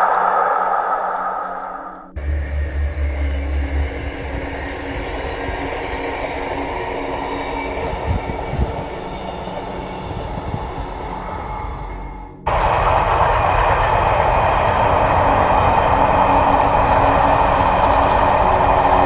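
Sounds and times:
drone propellers whirring: 0:00.0 - 0:11.8, 0:12.5 - 0:19.0
passenger train running: 0:00.0 - 0:19.0.

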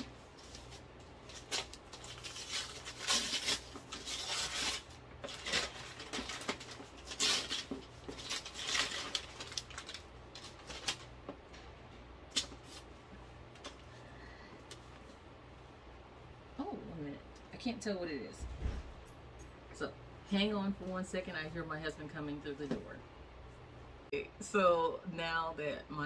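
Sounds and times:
wrapping paper rustling: 0:00.0 - 0:11.2.

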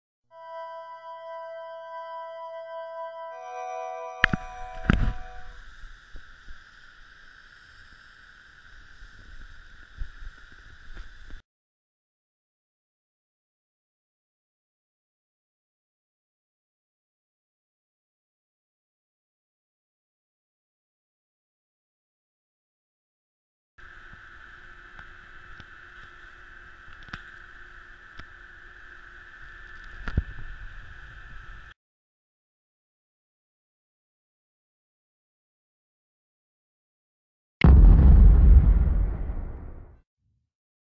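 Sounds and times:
steady hiss: 0:04.6 - 0:11.4, 0:23.8 - 0:31.7
loud thump: 0:37.6 - 0:39.9
muffled rumble and hum: 0:37.6 - 0:39.9.

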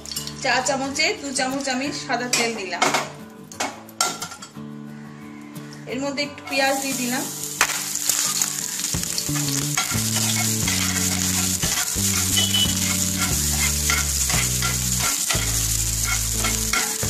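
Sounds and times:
onion sizzling in oil: 0:06.4 - 0:17.0
spatula stirring and scraping: 0:08.1 - 0:17.0.

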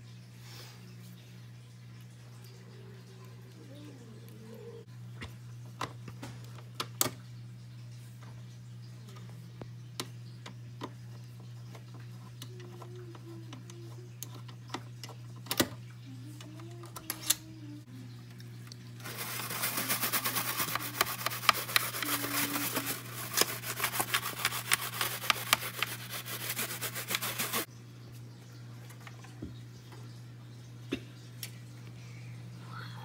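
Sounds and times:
toothbrush scrubbing plastic grille: 0:19.0 - 0:27.7.

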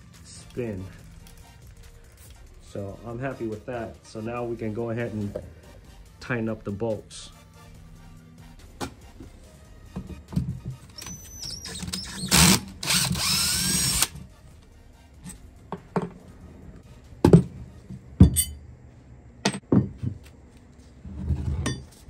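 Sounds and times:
cordless drill running: 0:11.1 - 0:14.2.

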